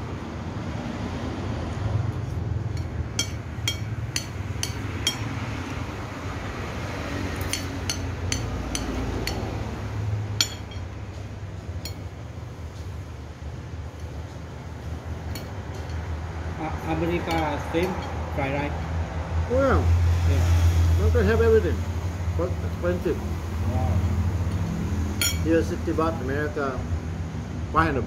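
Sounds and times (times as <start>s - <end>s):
cutlery clinking on a plate: 7.4s - 9.4s, 17.2s - 18.2s, 25.2s - 25.5s.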